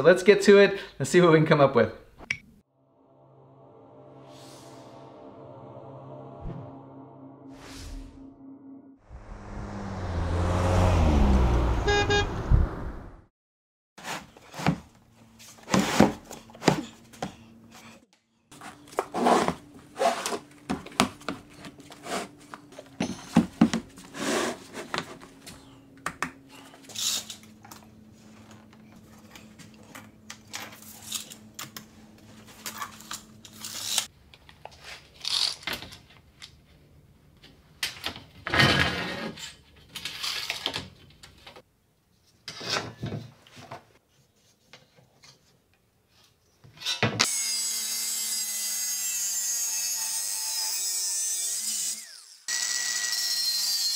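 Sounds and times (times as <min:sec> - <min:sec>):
motorhome engine driving past: 0:02.9 - 0:13.3
tape measure on aluminium: 0:32.5 - 0:34.1.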